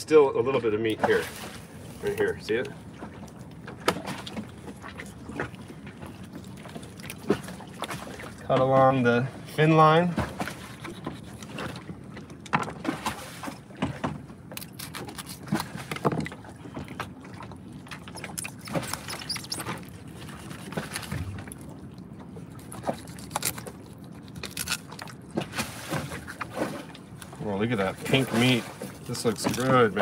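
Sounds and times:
knife cutting fish: 0:10.4 - 0:11.7, 0:14.6 - 0:16.1, 0:22.6 - 0:25.2.

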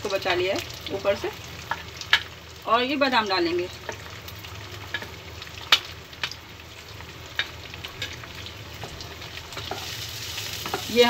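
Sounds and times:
ghee sizzling in a pan: 0:00.0 - 0:11.0.

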